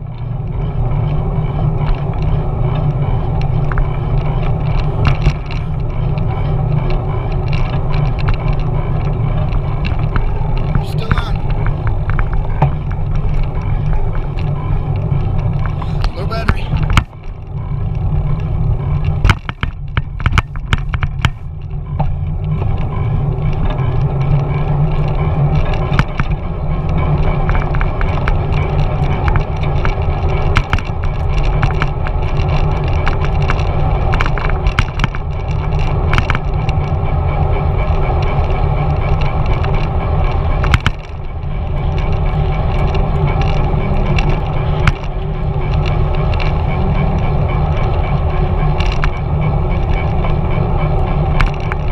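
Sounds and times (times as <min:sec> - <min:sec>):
bike clicks and rattles over bumps: 0:00.0 - 0:51.9.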